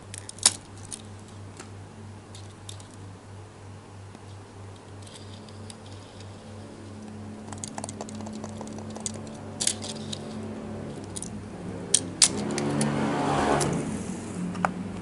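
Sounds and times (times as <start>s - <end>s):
toy car clicks and taps: 7.4s - 10.4s.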